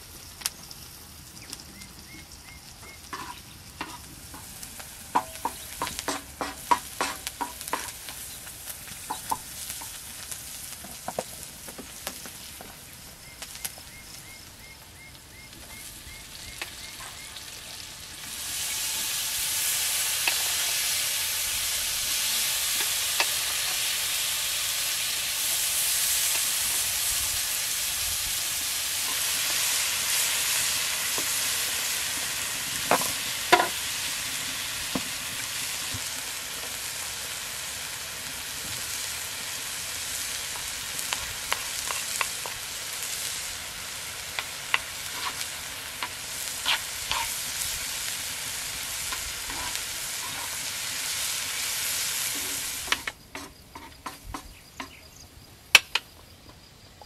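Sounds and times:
vegetables sizzling in a pan: 0.0 - 55.2
wooden spatula scraping a pan: 3.1 - 4.6, 44.5 - 47.6, 49.0 - 51.2, 52.2 - 54.5.

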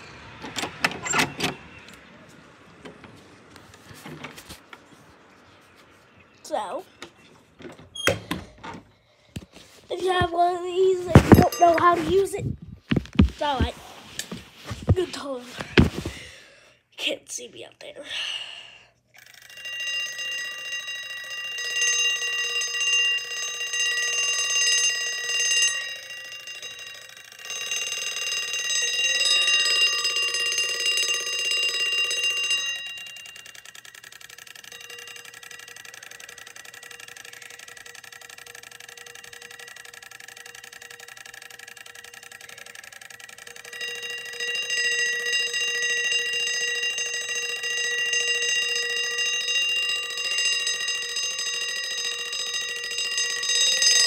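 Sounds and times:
alarm clock bell ringing: 10.0 - 13.7, 19.2 - 54.0.

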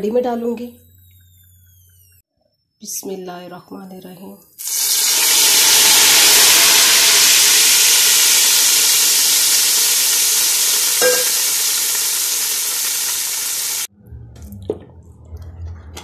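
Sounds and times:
hot oil sizzling: 4.6 - 13.9.

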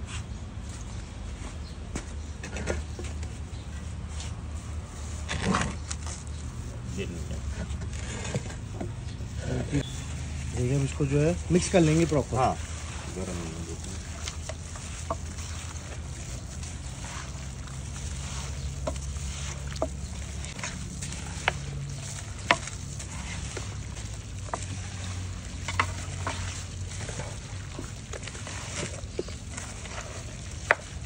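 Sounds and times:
wet squelching of meat: 8.9 - 31.0.

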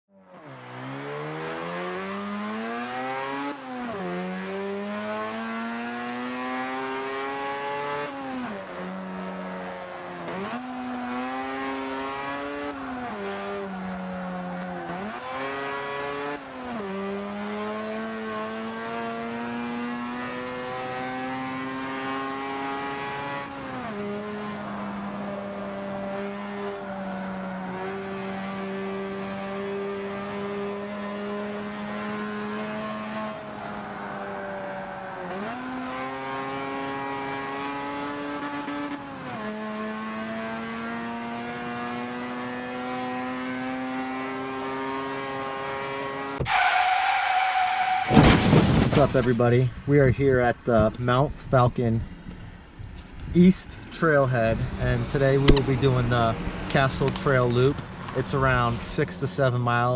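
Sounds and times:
car engine accelerating: 0.3 - 38.4, 49.5 - 51.0.

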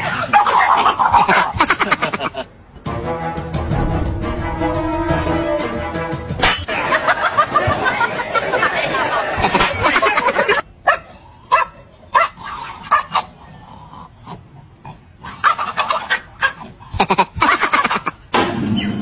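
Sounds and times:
dog growling and barking: 10.9 - 18.1.

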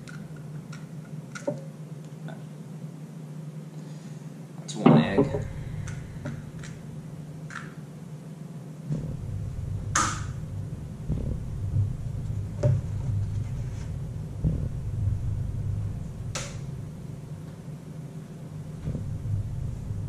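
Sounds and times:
low rumble: 4.9 - 7.5, 8.8 - 20.0.

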